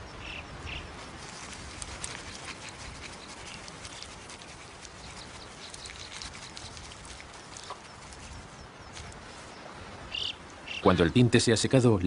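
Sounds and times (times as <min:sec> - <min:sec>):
small ticks and patters: 0:00.2 - 0:10.8
feathers rustling in loose soil: 0:00.8 - 0:10.2.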